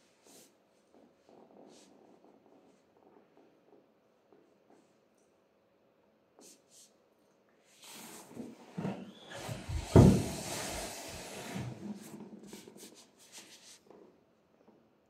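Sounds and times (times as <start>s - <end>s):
thump: 9.7s - 10.6s
socked feet shuffling on floor: 11.6s - 14.0s
small rubs and taps: 12.0s - 14.2s.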